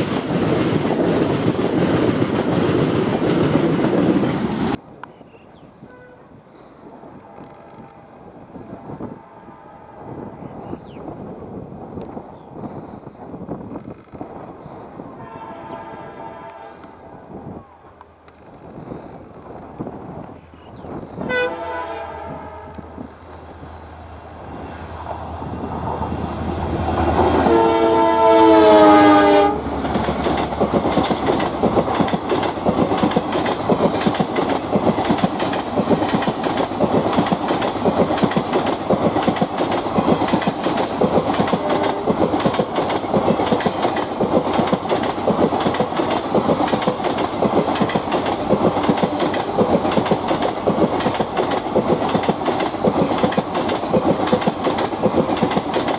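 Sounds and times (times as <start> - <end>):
train wheels clicking over rail joints: 0.0 - 4.8, 29.6 - 55.9
locomotive horn: 5.8 - 6.4, 7.2 - 10.3, 15.2 - 17.9, 21.2 - 22.9, 27.3 - 29.7, 41.5 - 42.2.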